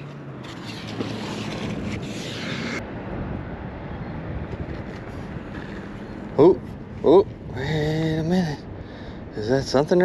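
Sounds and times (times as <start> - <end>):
wind buffeting microphone: 2.8 - 9.4.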